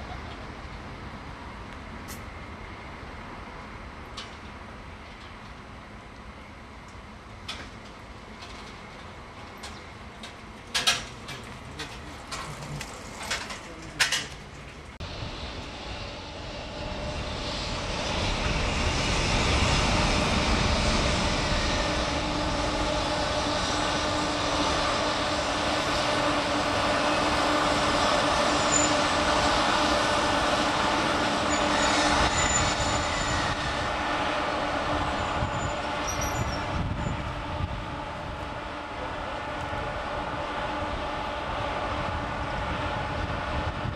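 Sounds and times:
train wheels rumbling on track: 0.0 - 43.9
faint high squeals: 28.4 - 29.2, 31.4 - 33.6, 35.1 - 37.2.

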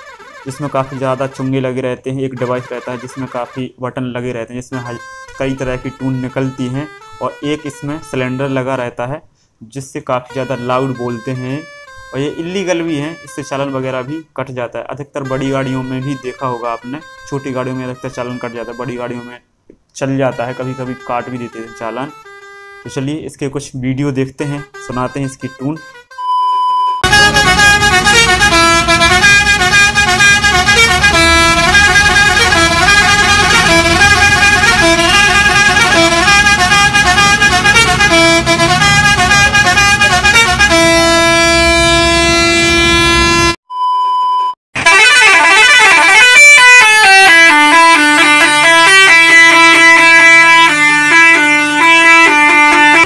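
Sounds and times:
truck musical air horns: 0.0 - 3.6, 4.8 - 8.8, 10.2 - 14.3, 15.2 - 19.5, 20.2 - 23.3, 24.4 - 26.2, 27.0 - 43.6, 44.8 - 53.0
steady test-tone beep: 26.2 - 27.1, 43.7 - 44.6
low engine rumble: 27.0 - 43.0.

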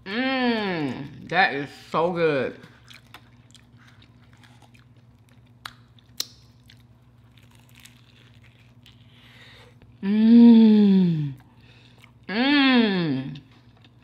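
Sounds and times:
crunching fried tortilla: 2.7 - 9.5
person humming mmm: 10.0 - 11.5, 12.3 - 13.5.

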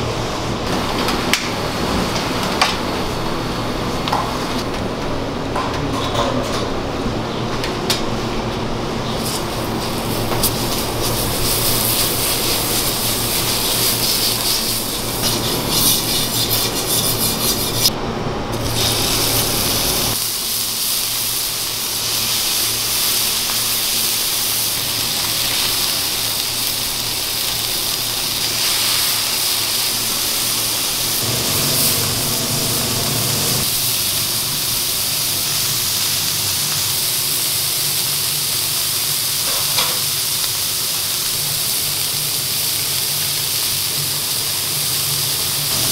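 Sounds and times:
hot griddle sizzling: 9.0 - 17.9, 18.5 - 45.9.

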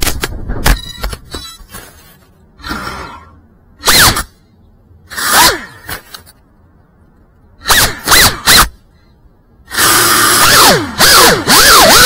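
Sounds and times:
drone motors whining: 2.6 - 4.4, 9.6 - 12.0.

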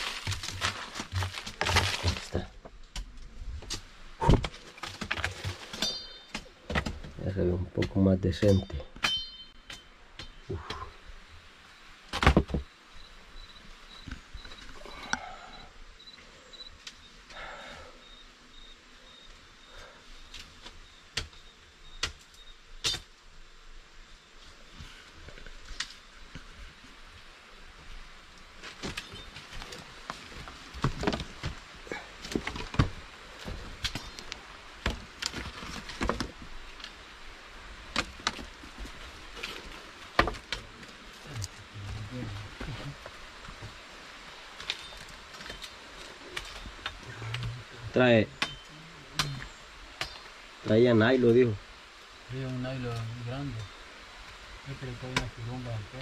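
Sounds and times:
steady outdoor hiss: 0.0 - 56.0
insect chirping: 8.4 - 56.0
dry sticks knocking and snapping: 49.2 - 50.3.

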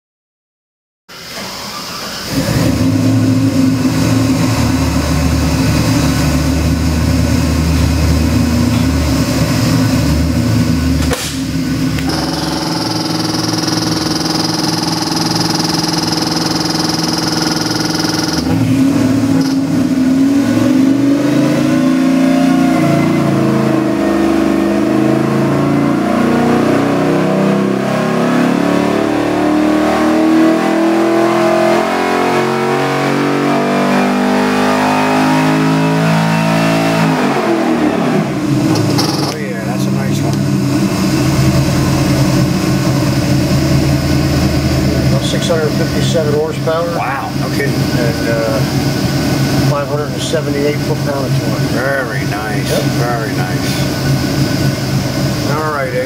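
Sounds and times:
car engine idling: 1.7 - 20.6, 38.3 - 56.0
car engine revving: 2.2 - 56.0.

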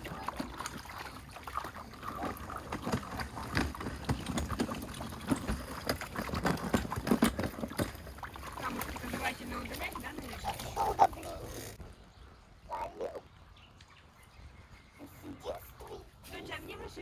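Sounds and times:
water splashing in plastic tub: 0.0 - 11.8.

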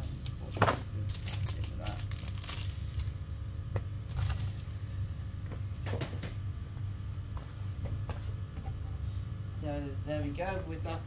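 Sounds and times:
low room hum: 0.0 - 11.0
packaging knocks and rustles: 0.5 - 3.1.

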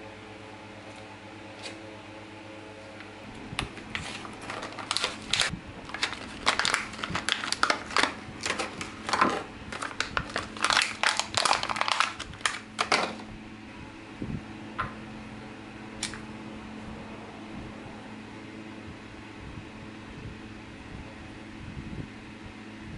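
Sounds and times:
packaging crinkling: 3.6 - 13.2
knife slitting packaging: 3.8 - 13.2.

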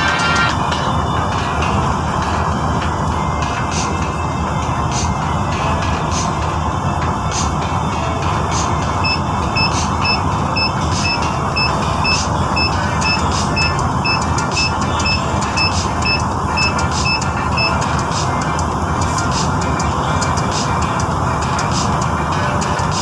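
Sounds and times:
vehicle engine and road noise: 0.0 - 23.0
short high electronic beeps: 9.0 - 17.8.

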